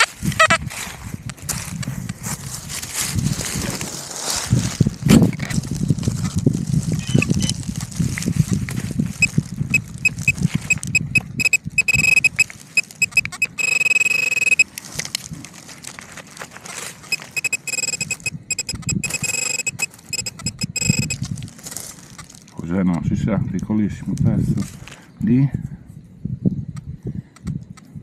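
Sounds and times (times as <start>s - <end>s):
metal detector beeping: 0.0s - 0.6s, 7.0s - 7.6s, 9.2s - 14.8s, 17.0s - 21.3s
soil scraping and digging: 0.0s - 11.5s, 12.1s - 22.7s.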